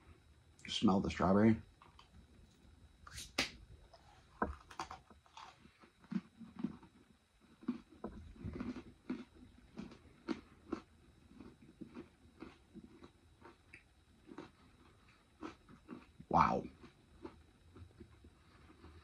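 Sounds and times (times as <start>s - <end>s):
chewing with faint crunches: 4.0s - 19.0s.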